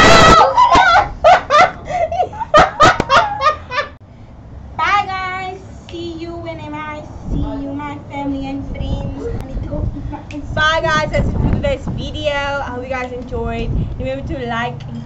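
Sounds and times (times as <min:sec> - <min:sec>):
girls laughing: 0:00.0 - 0:04.0.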